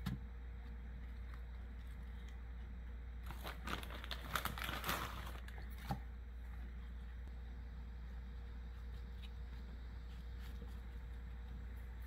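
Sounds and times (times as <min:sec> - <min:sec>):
sugar crinkling by hand: 0:03.2 - 0:05.8.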